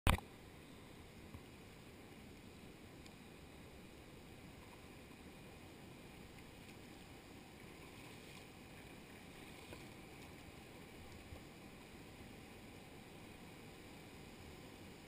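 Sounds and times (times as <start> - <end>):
water washing around kayak: 0.8 - 15.0
faint ticks: 2.3 - 3.3.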